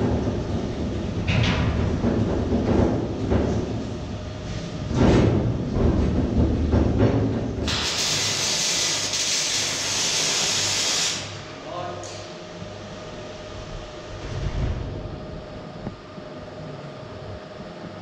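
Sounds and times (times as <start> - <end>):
low workshop rumble: 0.0 - 18.0
welding arc hissing: 7.6 - 11.5.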